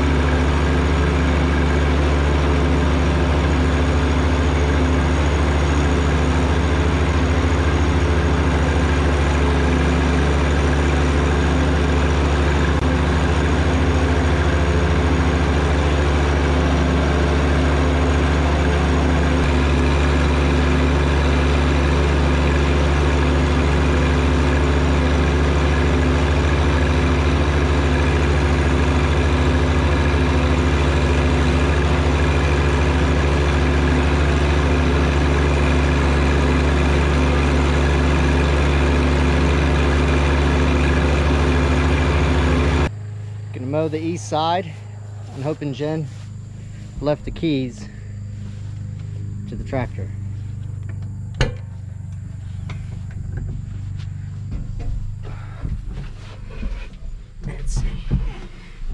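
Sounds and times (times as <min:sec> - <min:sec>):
tractor diesel engine running: 0:00.0 - 0:58.9.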